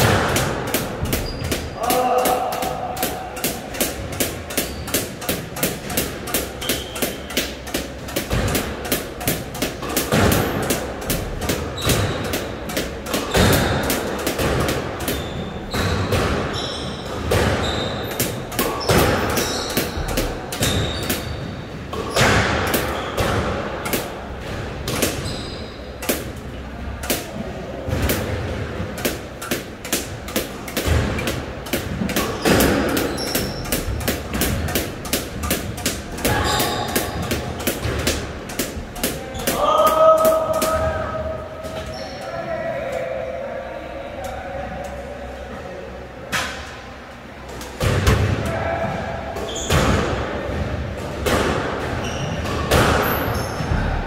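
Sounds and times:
racket striking ball: 0.0 - 25.2, 27.0 - 41.3
ball smacking walls and floor: 0.0 - 25.4, 27.2 - 41.0
shoes squeaking on court: 1.1 - 1.8, 4.5 - 5.2, 6.5 - 7.4, 15.0 - 23.3, 25.1 - 26.0, 32.2 - 34.0, 36.3 - 37.3, 41.7 - 42.4, 49.4 - 49.8, 51.9 - 53.7.

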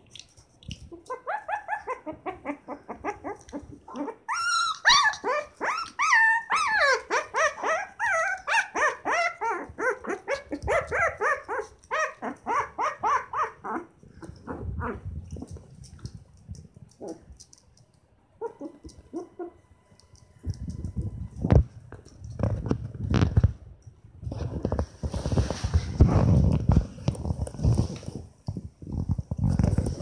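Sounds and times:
puppy yelping: 0.9 - 15.1, 18.4 - 19.7.

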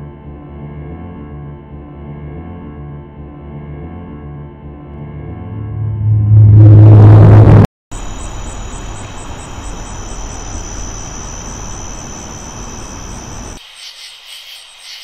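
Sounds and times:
distant engine rumble: 5.4 - 13.6
faint high pulsing: 5.5 - 13.6
thin high whine: 5.6 - 13.6.

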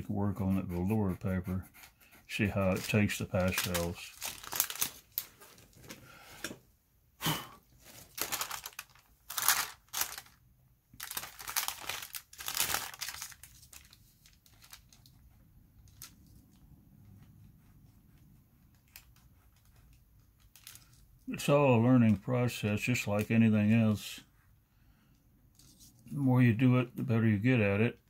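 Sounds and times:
thin paper crinkling and rustling: 2.5 - 6.0, 7.8 - 10.4, 11.0 - 16.6, 18.8 - 21.1.

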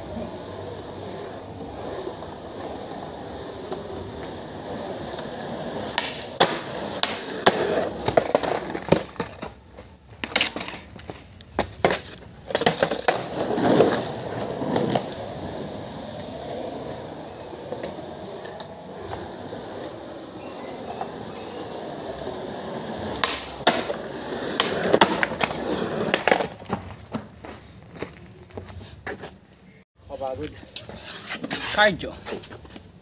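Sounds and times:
skateboard wheels rolling: 0.0 - 33.0
skateboard clacking on concrete: 0.4 - 28.1.

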